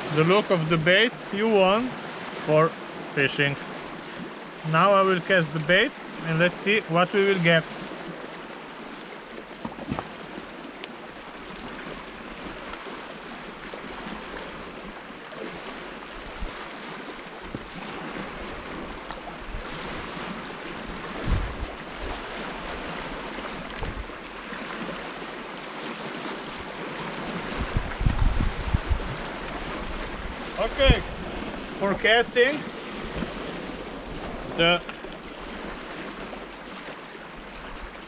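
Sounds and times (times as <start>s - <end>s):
waves splashing on rocks: 0.0s - 38.0s
wind on microphone: 16.1s - 16.7s, 17.4s - 24.2s, 26.5s - 31.9s.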